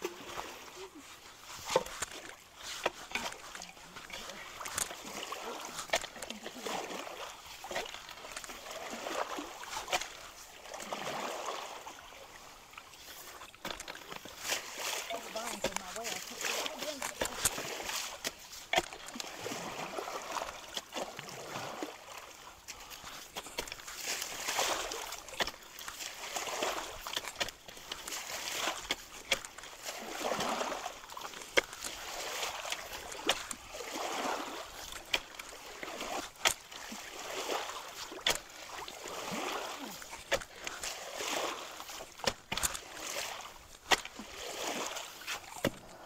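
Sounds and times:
creek water sloshing and splashing: 0:00.0 - 0:46.0
sticks and rake clicking: 0:01.2 - 0:06.9, 0:13.2 - 0:19.4, 0:23.1 - 0:46.0.

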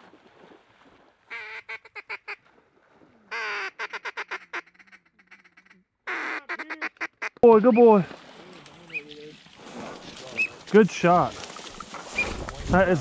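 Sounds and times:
duck quacking: 0:03.3 - 0:07.4.

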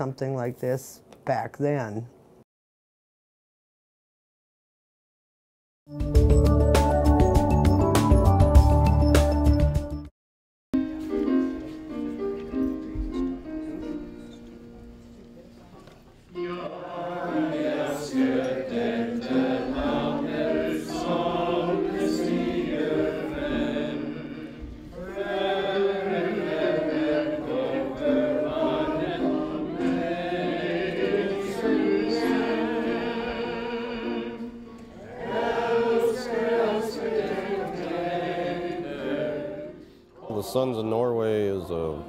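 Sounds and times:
group of people singing: 0:16.4 - 0:42.0.

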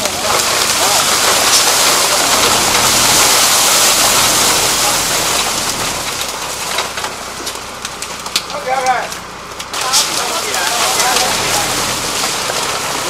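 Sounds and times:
truck engine running: 0:00.0 - 0:13.0.

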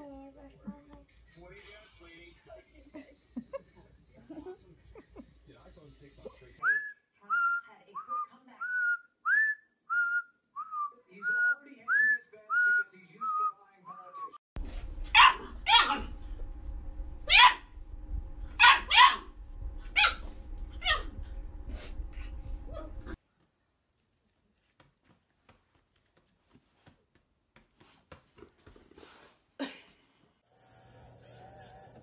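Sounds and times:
small dogs barking: 0:15.0 - 0:16.1, 0:17.2 - 0:17.7, 0:18.5 - 0:21.2.

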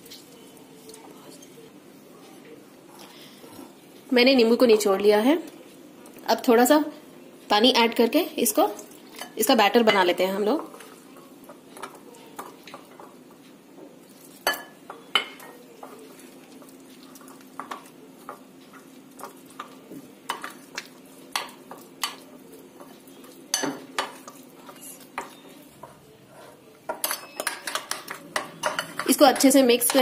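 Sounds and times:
spoon mixing wet batter: 0:08.8 - 0:30.0
spoon clinking against glass bowl: 0:14.4 - 0:15.6, 0:23.5 - 0:25.4, 0:26.9 - 0:30.0.

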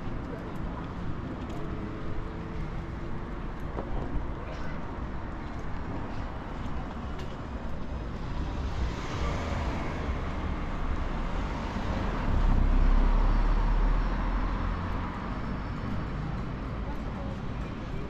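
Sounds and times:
road traffic: 0:00.0 - 0:18.0
vehicle passing close by: 0:08.3 - 0:15.0.

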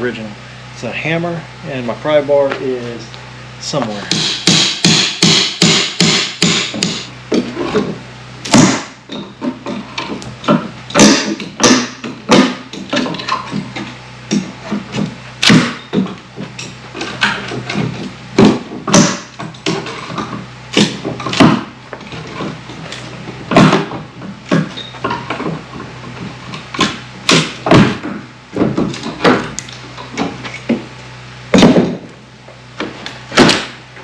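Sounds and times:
hammer blows on wood: 0:04.1 - 0:07.1.

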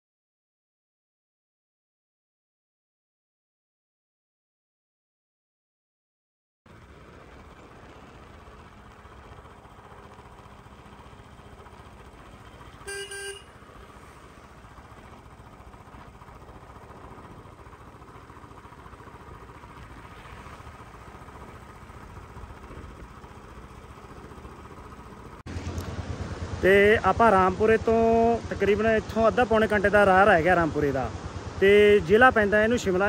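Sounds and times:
motorcycle engine running: 0:06.7 - 0:33.0
road noise: 0:06.7 - 0:33.0
vehicle horn: 0:12.8 - 0:13.7.

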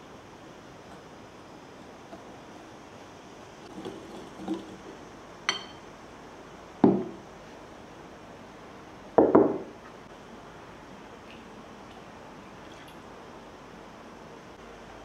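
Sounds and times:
whisk clinking against glass: 0:05.5 - 0:05.8
glassware knocking on wooden worktop: 0:06.8 - 0:07.2, 0:09.2 - 0:09.7.

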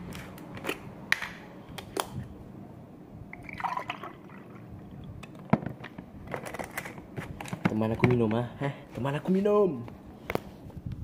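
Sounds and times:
drink pouring into a glass: 0:03.4 - 0:04.7.

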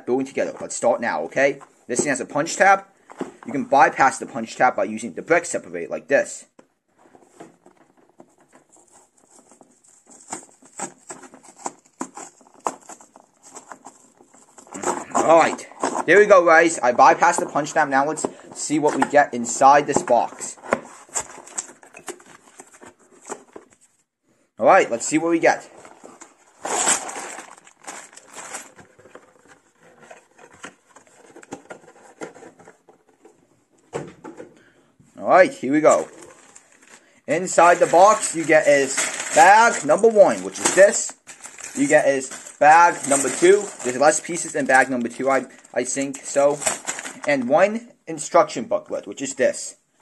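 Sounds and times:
plastic bag crinkling: 0:25.8 - 0:31.6, 0:35.8 - 0:47.4.

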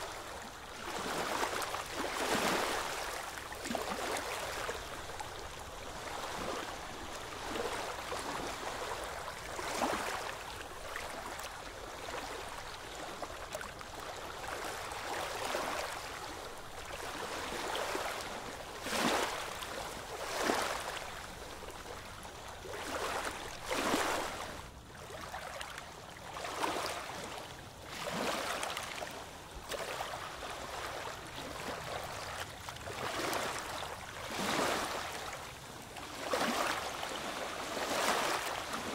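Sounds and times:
gentle water lapping: 0:00.0 - 0:38.9
oars splashing through water: 0:29.6 - 0:35.4, 0:36.0 - 0:38.9.

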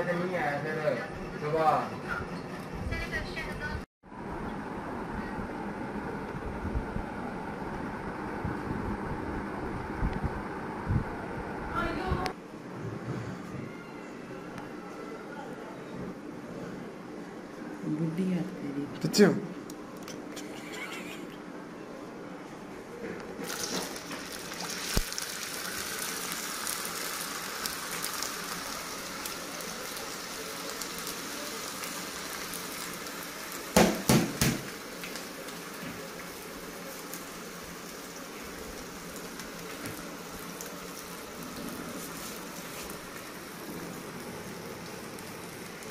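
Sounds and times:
food sizzling in oil: 0:23.4 - 0:45.9.

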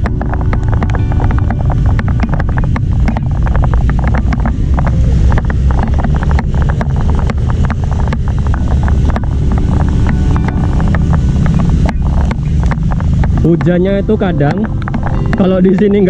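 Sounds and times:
rain: 0:00.0 - 0:13.4
motorbike and car traffic: 0:00.0 - 0:16.0
wind rumbling on microphone: 0:00.0 - 0:16.0
quick irregular clicks and taps: 0:14.5 - 0:16.0.

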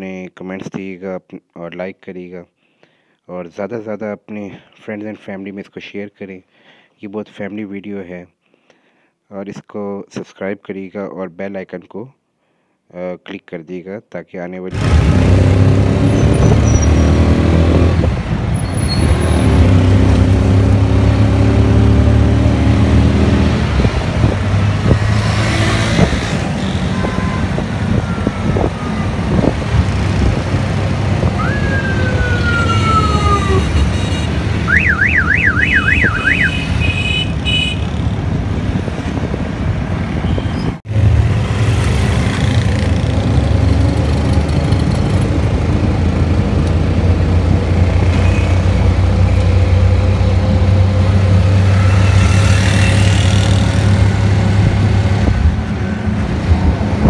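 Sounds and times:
road and traffic noise: 0:14.6 - 0:57.0
auto-rickshaw engine humming: 0:14.8 - 0:57.0
electronic siren-like tone: 0:31.4 - 0:37.1.

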